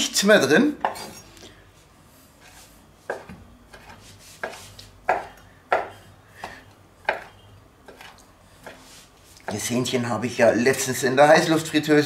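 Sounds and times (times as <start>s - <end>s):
knife chopping on wooden board: 3.1s - 8.8s.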